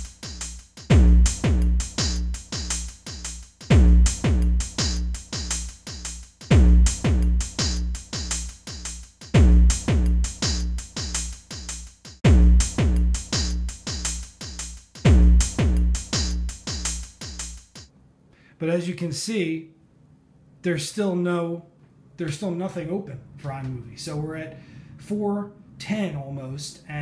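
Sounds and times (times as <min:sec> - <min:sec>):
electronic music with drum-machine beat: 0:00.0 - 0:17.9
heavy falling bass hit: 0:12.2 - 0:13.2.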